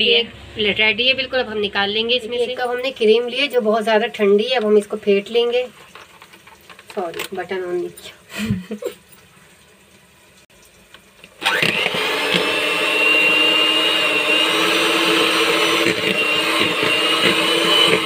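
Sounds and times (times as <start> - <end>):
electric hand mixer whining: 11.4 - 18.0.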